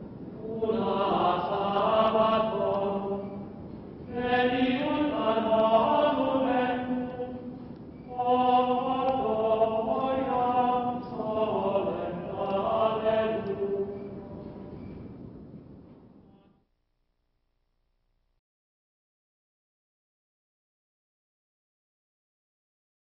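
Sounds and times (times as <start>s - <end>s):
chant-like choral singing: 0.4s - 14.7s.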